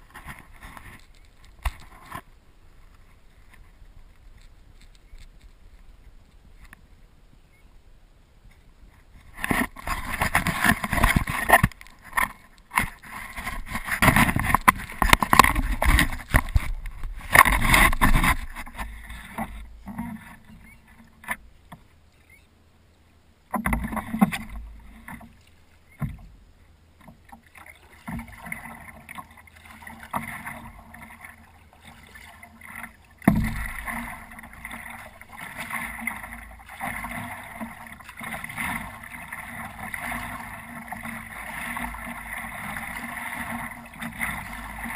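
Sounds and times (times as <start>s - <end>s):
water lapping against board: 8.5s - 22.4s, 23.5s - 44.9s
paddle strokes splashing: 8.5s - 22.6s, 23.4s - 44.9s.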